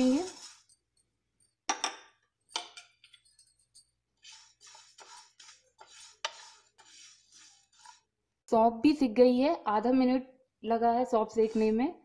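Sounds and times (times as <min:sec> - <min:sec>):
spatula scraping seeds in pan: 0:00.0 - 0:00.8, 0:04.2 - 0:08.2, 0:11.3 - 0:11.8.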